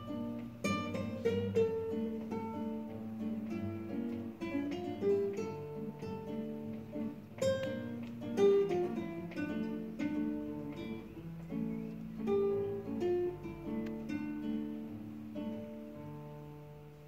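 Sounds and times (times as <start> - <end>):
classical guitar duet: 0.0 - 17.0.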